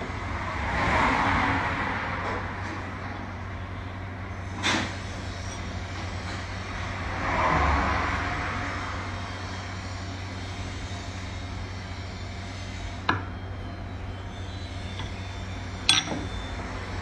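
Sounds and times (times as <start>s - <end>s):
steady background hum: 2.1s - 7.2s, 8.2s - 17.0s
metal spearhead knocking on table: 15.9s - 16.2s.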